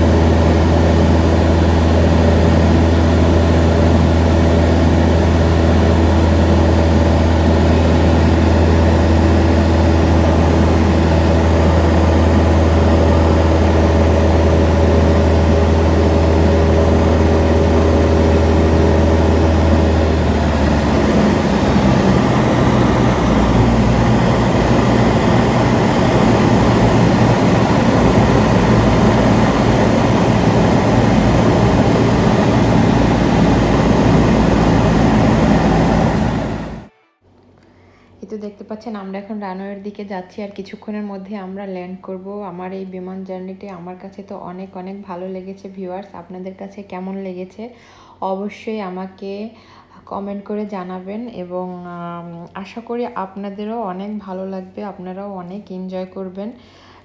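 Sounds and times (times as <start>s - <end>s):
airplane engine and propeller droning: 0.0s - 36.9s.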